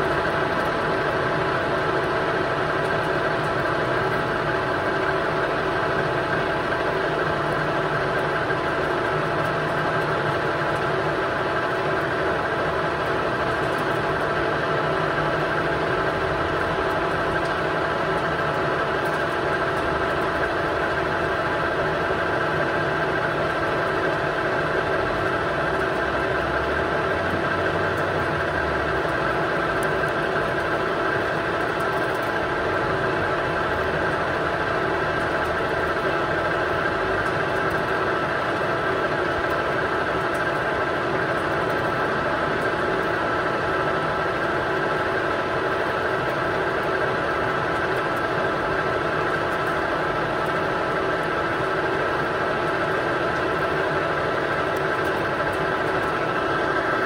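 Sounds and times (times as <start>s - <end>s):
lathe running with high whine: 0.0s - 57.0s.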